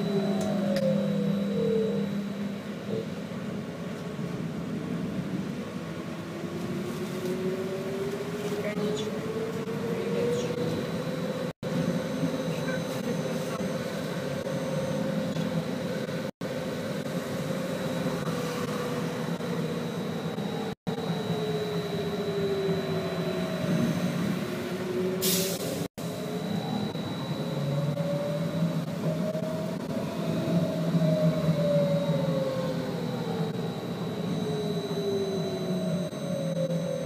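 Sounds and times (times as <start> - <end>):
steady low rumble: 0.0 - 24.8
trolleybus motor whine: 0.0 - 37.0.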